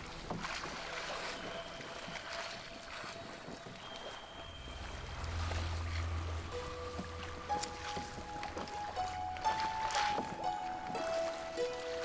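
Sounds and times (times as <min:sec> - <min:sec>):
water noise: 0:00.0 - 0:12.0
wind: 0:00.0 - 0:12.0
low rumble: 0:04.0 - 0:09.0.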